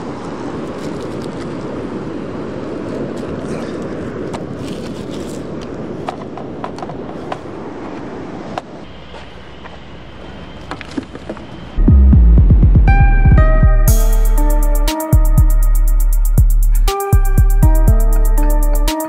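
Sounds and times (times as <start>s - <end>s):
beach surf: 0.0s - 11.8s
wind: 0.0s - 19.0s.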